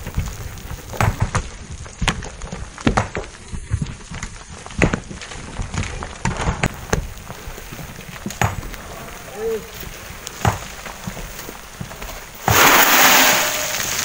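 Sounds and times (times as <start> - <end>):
irregular knocks and thuds: 0.0 - 8.8, 10.4 - 12.7
low rumbling noise: 12.3 - 14.0.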